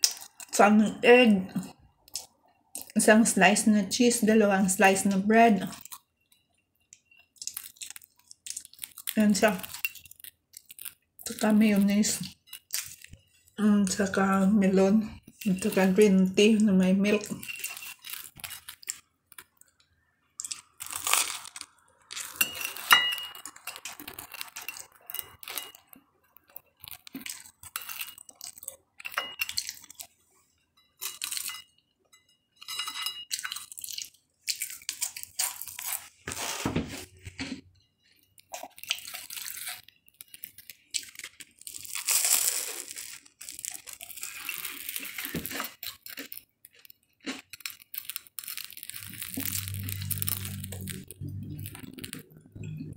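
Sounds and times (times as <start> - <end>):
bread crackling and tearing: 7.3 - 13.6, 17.3 - 30.2, 33.3 - 36.7, 38.1 - 52.4.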